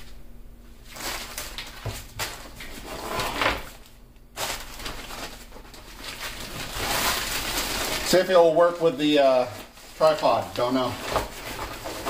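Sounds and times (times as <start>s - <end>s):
nylon cover rustling: 3.6s - 12.0s.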